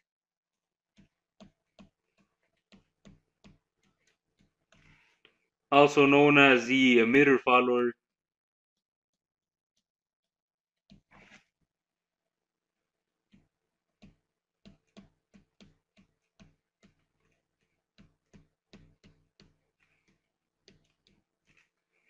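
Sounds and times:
stylus tapping on pen tablet: 1.0s - 5.1s, 13.3s - 21.7s.

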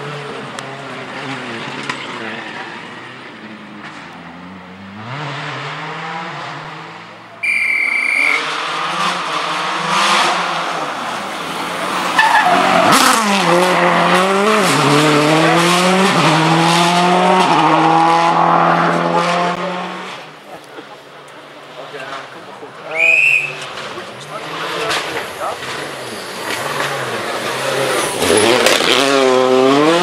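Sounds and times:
rally car engines revving: 0.0s - 30.0s
short shrill tone: 7.4s - 8.4s.

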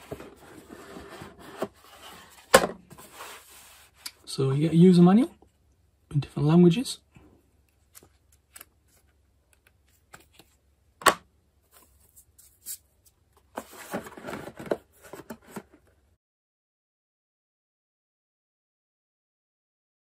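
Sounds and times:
paper and cardboard rustling: 0.0s - 4.0s, 13.5s - 15.9s.

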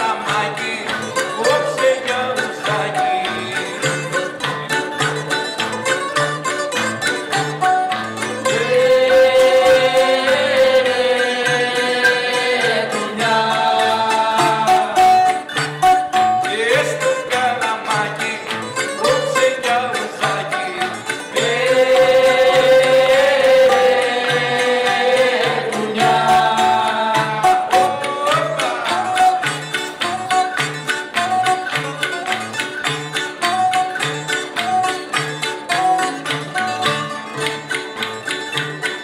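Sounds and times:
person singing: 0.0s - 4.3s, 8.4s - 30.5s
string band strumming: 0.0s - 39.0s.

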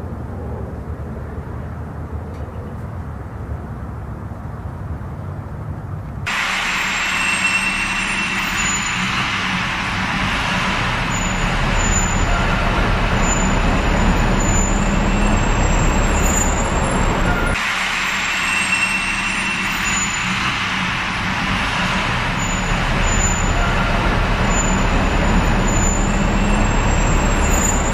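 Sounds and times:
traffic roar in road tunnel: 0.0s - 27.9s.

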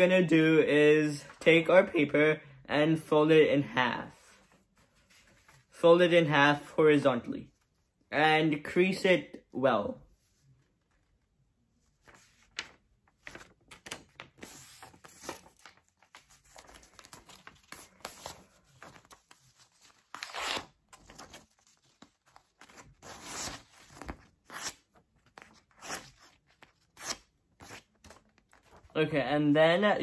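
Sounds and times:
paper rustling and creasing: 4.3s - 5.8s, 10.2s - 29.1s.

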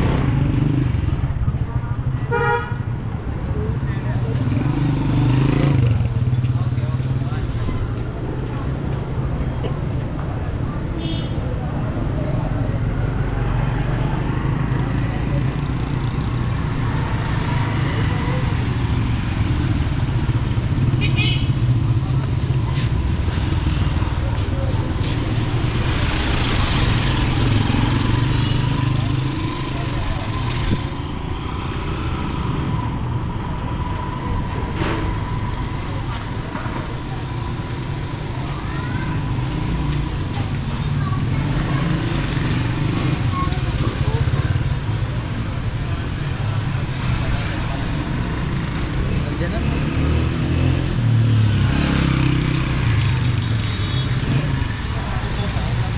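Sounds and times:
vehicle engines passing: 0.0s - 55.9s
people talking: 5.8s - 8.9s, 22.0s - 25.8s, 27.8s - 30.9s, 35.8s - 46.4s, 54.3s - 55.9s.

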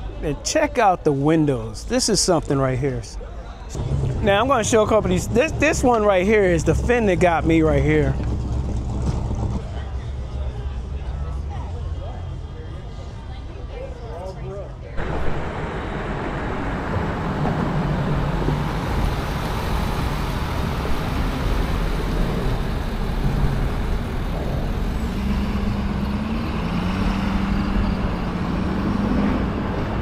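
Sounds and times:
road and wind noise: 1.1s - 30.0s
car engine low hum: 3.8s - 11.4s, 15.0s - 30.0s.

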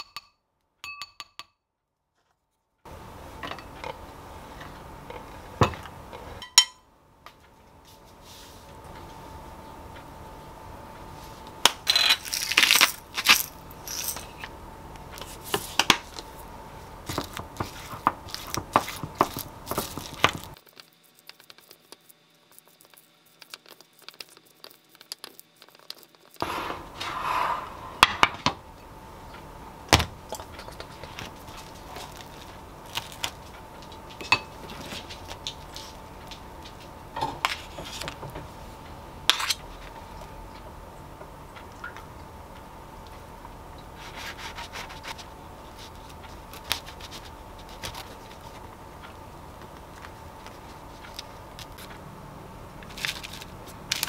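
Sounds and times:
faint steady hum: 2.8s - 54.0s
spoon scraping ceramic bowl: 26.4s - 28.3s.

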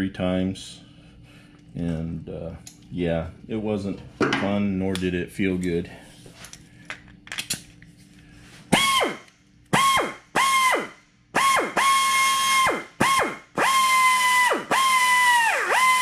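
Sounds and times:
pneumatic air drill whining: 8.7s - 16.0s.

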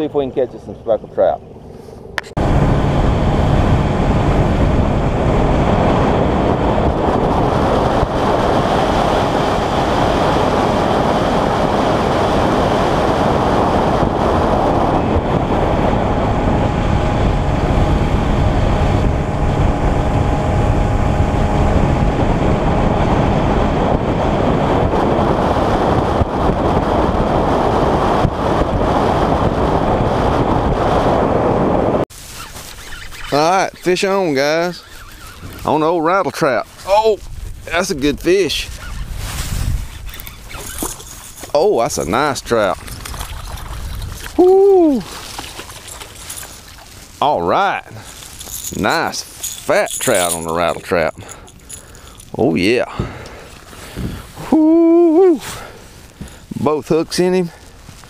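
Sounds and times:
wind on microphone: 1.7s - 58.0s
boat motor running: 2.2s - 26.5s, 32.7s - 36.0s.

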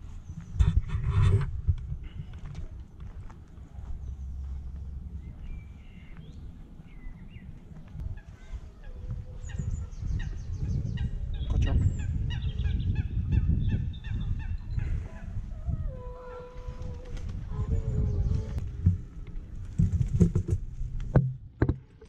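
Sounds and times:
low rumble: 0.0s - 8.4s.

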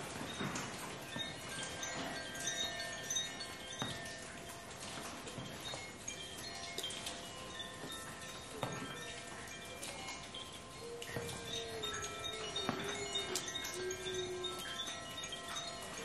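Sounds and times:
chime ringing: 0.0s - 16.0s.

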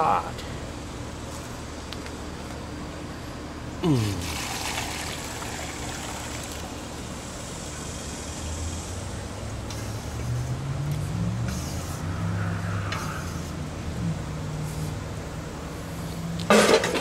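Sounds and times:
liquid slurry pouring and splashing: 4.2s - 6.8s.

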